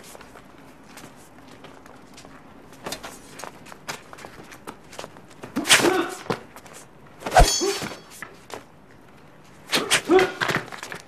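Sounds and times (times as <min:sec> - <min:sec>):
footsteps and scuffs on stone: 0:00.0 - 0:05.6
flurries of sword blows: 0:05.5 - 0:06.4, 0:07.2 - 0:08.2, 0:09.7 - 0:10.6
fighter grunting: 0:05.6 - 0:06.3
metallic ring of blades: 0:07.4 - 0:08.2.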